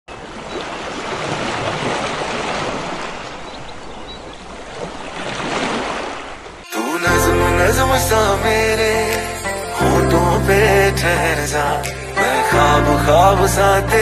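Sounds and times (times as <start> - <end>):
waves washing up a beach: 0.2 - 6.7
music track: 6.7 - 14.0.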